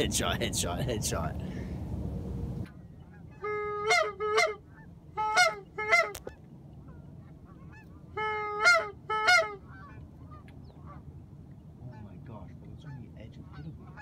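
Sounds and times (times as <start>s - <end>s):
goose call honking: 3.0s - 11.1s, 12.8s - 14.0s.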